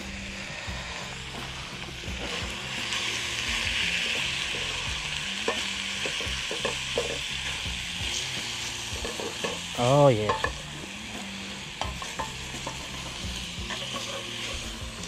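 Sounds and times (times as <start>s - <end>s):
beef sizzling in a skillet: 0.0s - 15.0s
spatula scraping and tapping pan: 4.2s - 7.3s, 8.9s - 10.7s, 11.8s - 15.0s.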